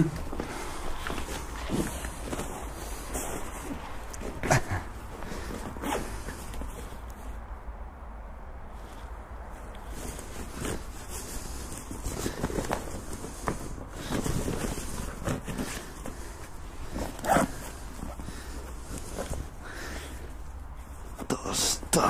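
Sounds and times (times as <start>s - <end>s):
hands rummaging in fabric bag: 0.0s - 7.4s, 8.8s - 22.0s
zipper pulled open: 16.9s - 18.2s.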